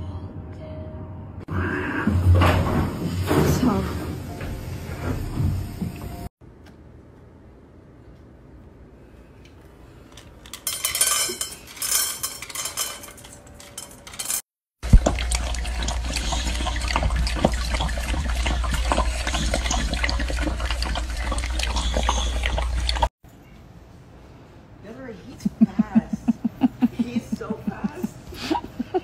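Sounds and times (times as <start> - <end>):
dog lapping from metal bowl: 14.8 - 23.1.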